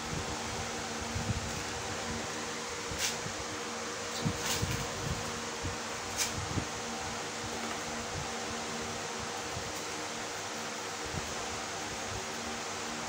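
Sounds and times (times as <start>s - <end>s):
steady hiss and hum: 0.0s - 13.0s.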